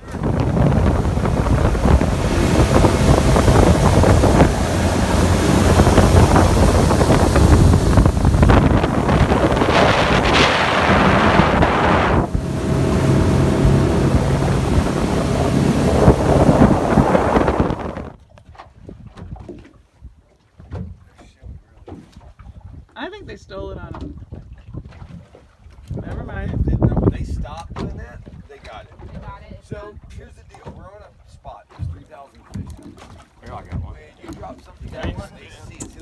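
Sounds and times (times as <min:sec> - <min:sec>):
boat engine hum: 0:00.0 - 0:18.2
wind rush on microphone: 0:00.0 - 0:19.5, 0:25.8 - 0:30.2
water noise: 0:00.0 - 0:36.0.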